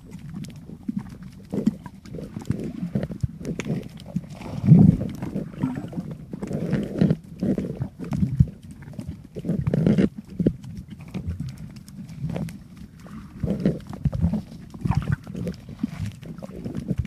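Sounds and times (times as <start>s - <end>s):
underwater water surges: 2.1s - 7.0s.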